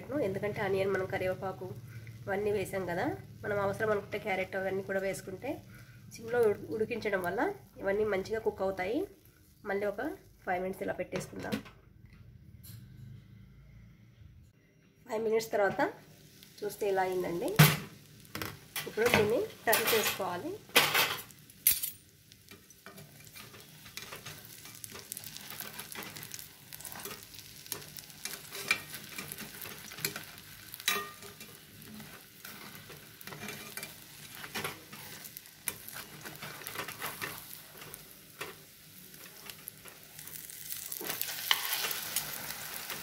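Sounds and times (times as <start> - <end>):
omelette sizzling in a frying pan: 0.0 - 10.8, 15.2 - 43.0
metal spatula scraping a pan: 22.5 - 38.6.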